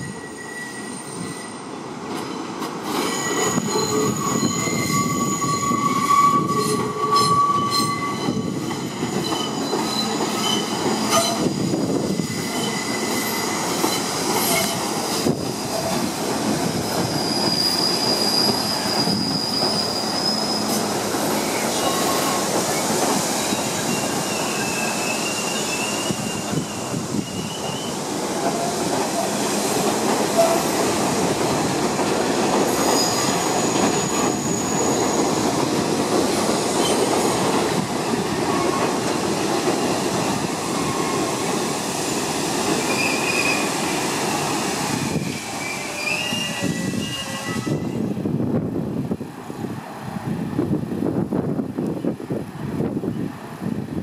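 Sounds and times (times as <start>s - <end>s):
train wheels squealing: 0.0s - 29.5s, 32.6s - 35.5s, 36.6s - 37.4s, 39.8s - 41.3s, 42.0s - 48.1s
train rumbling: 0.0s - 54.0s.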